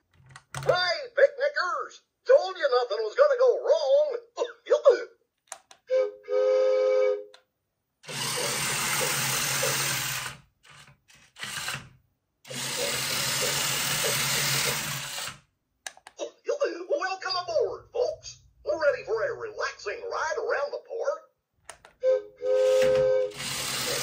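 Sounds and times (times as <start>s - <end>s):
toy train motor whirring: 8.0s - 15.5s, 22.4s - 24.0s.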